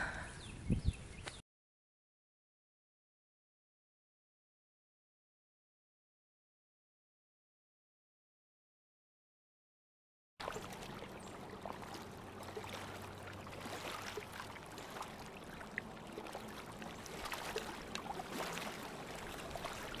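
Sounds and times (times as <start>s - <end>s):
river water lapping: 10.4s - 20.0s.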